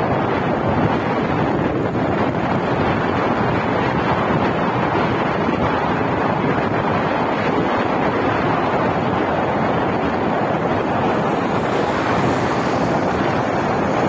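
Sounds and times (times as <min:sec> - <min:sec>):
vehicle road noise: 0:00.0 - 0:14.0
wind buffeting microphone: 0:00.0 - 0:14.0
motorcycle passing: 0:08.3 - 0:14.0.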